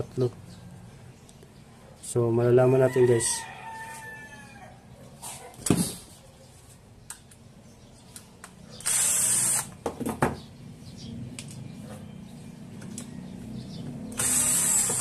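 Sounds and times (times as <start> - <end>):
cordless drill driving screws: 8.8 - 9.7, 14.1 - 15.0.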